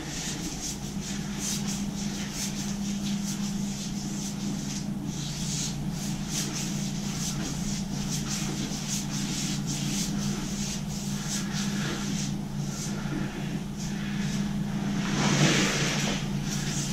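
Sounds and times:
scratchy paint brush strokes: 0.0s - 16.9s
steady low hum: 0.0s - 16.9s.

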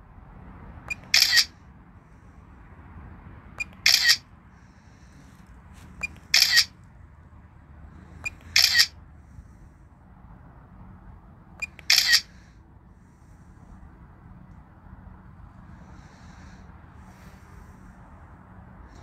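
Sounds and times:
camera shutter click: 0.9s - 1.5s, 3.6s - 4.2s, 6.4s - 6.7s, 8.3s - 8.9s, 11.6s - 12.2s.

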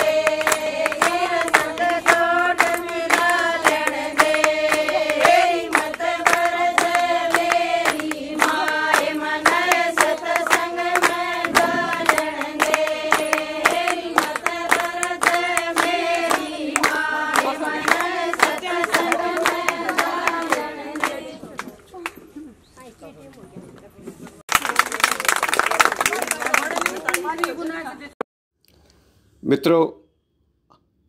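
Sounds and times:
women singing folk song: 0.0s - 21.6s
hand-clapping: 0.0s - 22.2s, 24.5s - 27.6s.

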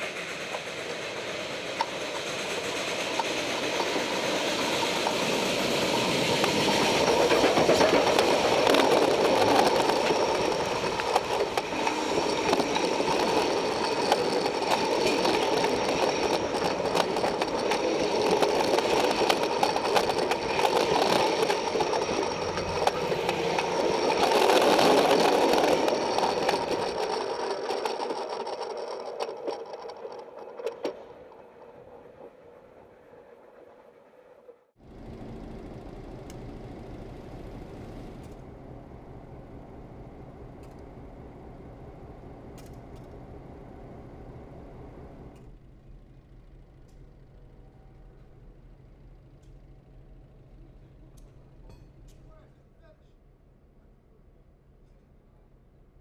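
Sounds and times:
rail clicks: 0.0s - 34.5s
steam locomotive running: 0.0s - 42.7s.

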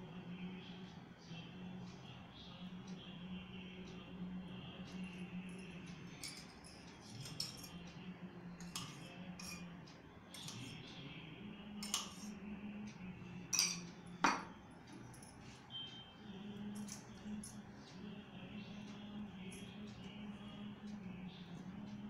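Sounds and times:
steel utensils clinking: 6.2s - 7.8s, 8.6s - 9.6s, 10.4s - 10.7s, 11.8s - 12.3s, 13.5s - 14.5s.

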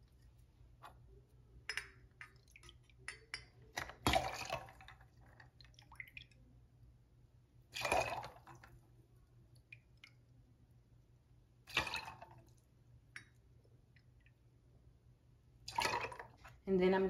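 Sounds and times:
metal clinks and taps: 1.7s - 2.4s.

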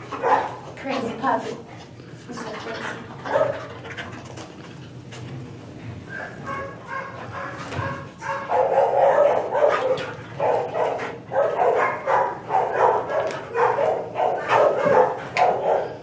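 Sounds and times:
dog barking and yipping: 6.4s - 16.0s.

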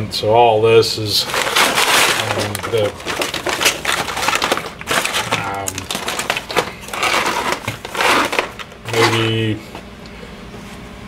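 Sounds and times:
foil pouches crinkling: 1.0s - 9.6s.

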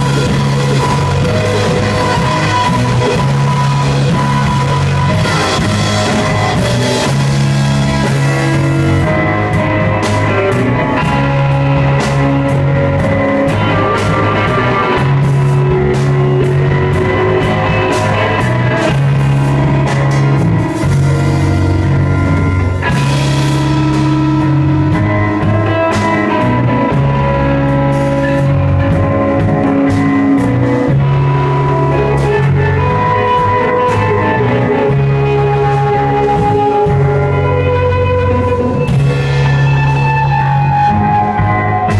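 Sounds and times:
rock band playing live: 0.0s - 41.9s.

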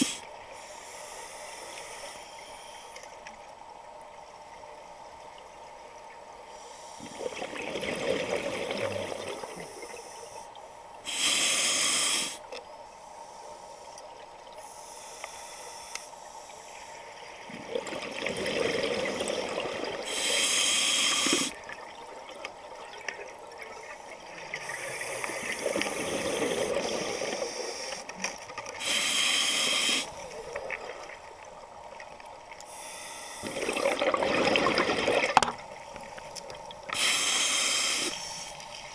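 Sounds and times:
regulator inhalation hiss: 0.0s - 3.0s, 9.4s - 13.9s, 20.0s - 21.6s, 24.6s - 28.0s, 28.8s - 30.4s, 32.7s - 33.6s, 36.9s - 38.9s
exhalation bubbling underwater: 7.1s - 9.6s, 17.5s - 20.0s, 33.4s - 35.5s.

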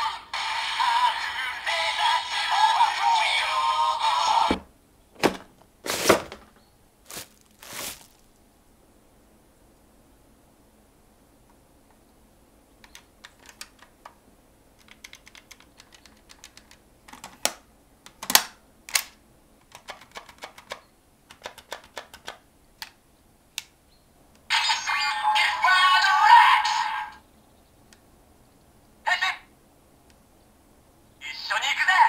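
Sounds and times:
hard plastic clicks and snaps: 14.8s - 24.4s
toy electronic announcement: 24.5s - 27.2s.

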